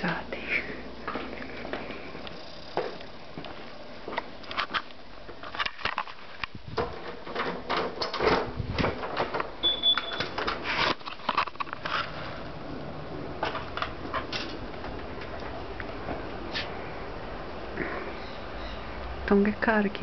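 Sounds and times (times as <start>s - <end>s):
door latch clicks and rattles: 6.8s - 10.6s
door squeak: 9.6s - 10.4s.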